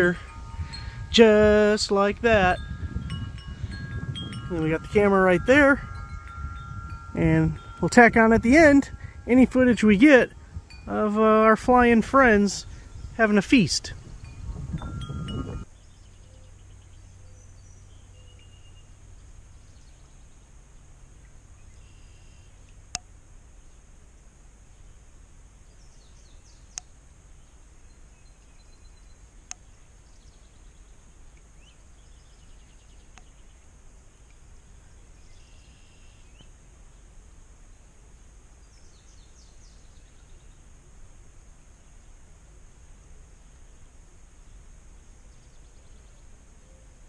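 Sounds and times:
chime-like ringing: 0:00.0 - 0:15.7
faint bird chirps: 0:14.1 - 0:19.0, 0:21.2 - 0:22.7, 0:31.6 - 0:37.1.

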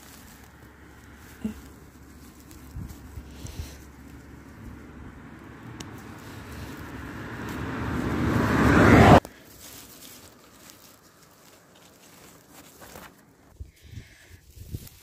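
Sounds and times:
vehicle approaching: 0:00.0 - 0:12.7.

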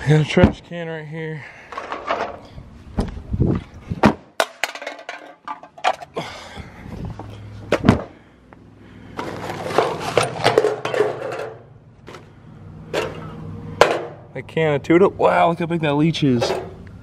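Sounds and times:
junk knocking and clattering: 0:09.2 - 0:12.3, 0:12.9 - 0:14.3.

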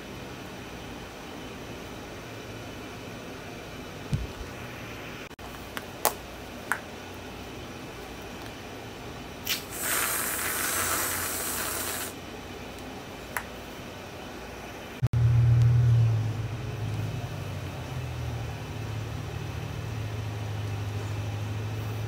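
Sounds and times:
aerosol can hissing: 0:09.5 - 0:12.2
low hum: 0:14.9 - 0:22.0.

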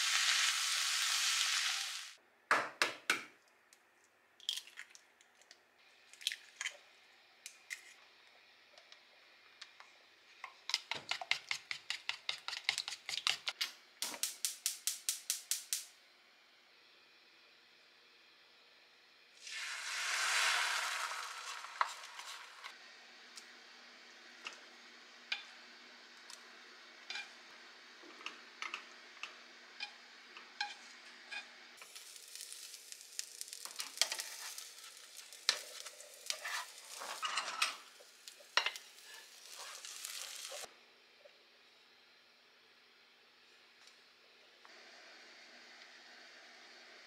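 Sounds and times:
egg sizzling in hot oil: 0:00.0 - 0:02.2, 0:19.2 - 0:40.7.

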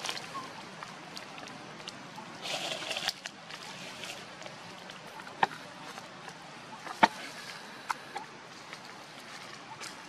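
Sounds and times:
twigs and branch cracking: 0:00.0 - 0:02.0
steady outdoor hiss: 0:00.0 - 0:10.0.

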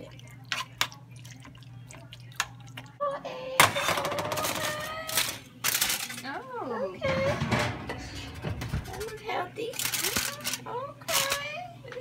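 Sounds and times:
aluminium foil crinkling: 0:04.5 - 0:06.4, 0:08.9 - 0:11.5.

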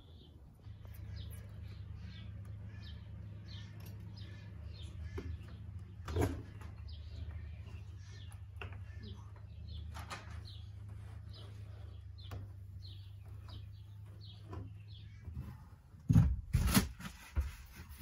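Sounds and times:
birds chirping: 0:00.0 - 0:18.0
knocks and scrapes of window: 0:10.2 - 0:18.0.

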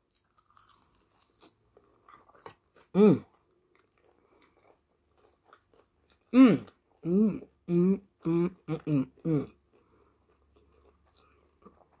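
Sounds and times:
chewing crispy chicken: 0:00.0 - 0:12.0
person vocal sound: 0:03.0 - 0:03.3, 0:06.4 - 0:09.5.

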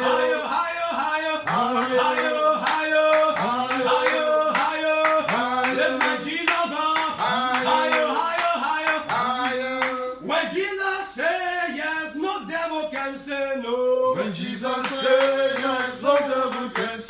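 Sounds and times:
man singing a chant: 0:00.0 - 0:17.0
sharp rhythmic beats: 0:01.4 - 0:10.2.

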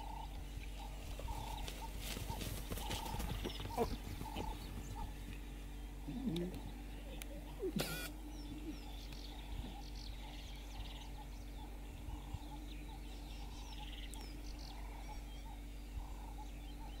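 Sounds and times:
rattling bird trills: 0:00.0 - 0:06.1
steady low hum: 0:00.0 - 0:17.0
wild bird chirps and calls: 0:00.0 - 0:17.0.

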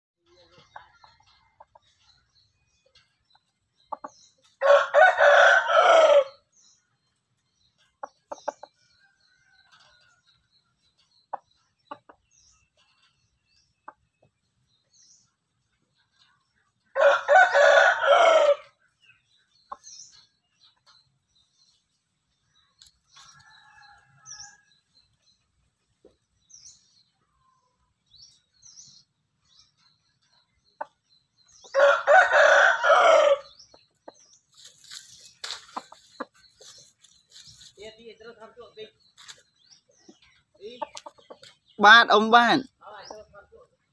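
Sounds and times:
small birds chirping: 0:00.2 - 0:43.9
rooster crowing: 0:04.6 - 0:06.4, 0:17.0 - 0:18.7, 0:31.7 - 0:33.5.

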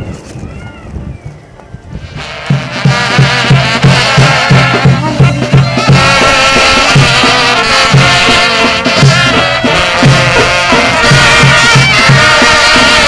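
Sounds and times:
steady drum beat: 0:02.0 - 0:13.0
wavering folk melody: 0:02.9 - 0:13.0.

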